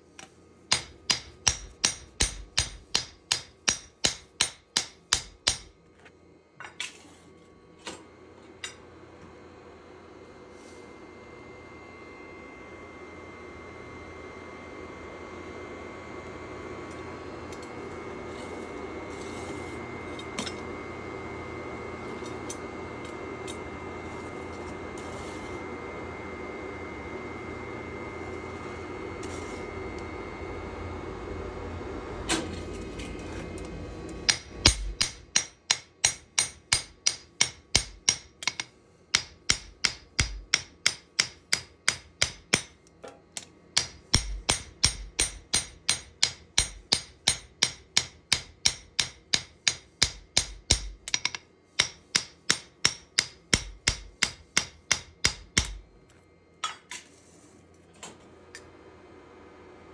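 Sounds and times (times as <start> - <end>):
steady hum: 0.0 - 59.9
hammer striking hot steel: 0.7 - 5.8, 34.2 - 55.9.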